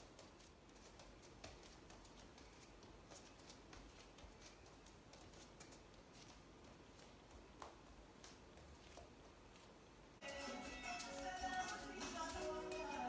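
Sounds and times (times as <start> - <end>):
bare feet on wooden floor: 0.0 - 10.0.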